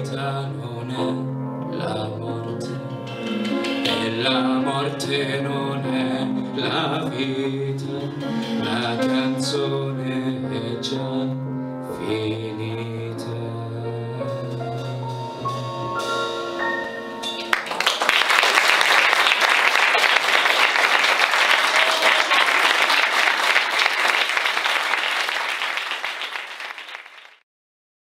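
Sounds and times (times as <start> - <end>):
band chord on piano bass and drums: 2.4 - 11.0, 11.6 - 17.6
audience applause: 17.5 - 27.4.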